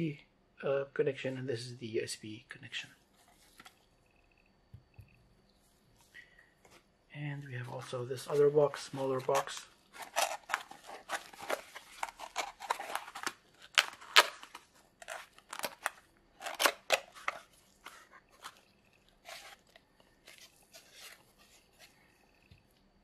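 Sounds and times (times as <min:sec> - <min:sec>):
cardboard flaps scraping and crackling: 0:08.2 - 0:21.9.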